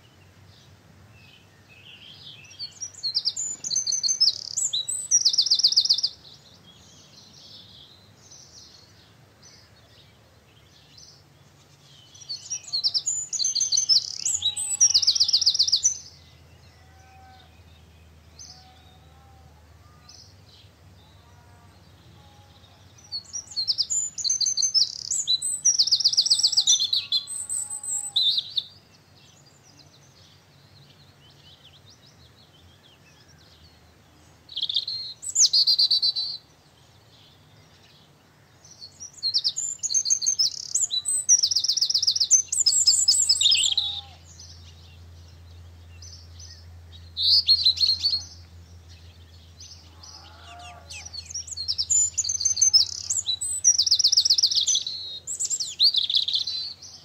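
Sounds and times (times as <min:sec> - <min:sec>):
faint lower bird calls: 0:00.0 - 0:57.0
songbird singing rapid trills: 0:00.0 - 0:57.0.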